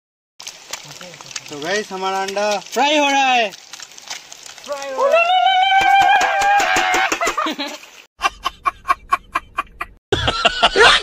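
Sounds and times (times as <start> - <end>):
eggs frying in hot oil: 0.4 - 5.0
high drawn-out vocal cry: 4.7 - 7.2
man laughing loudly: 6.9 - 11.0.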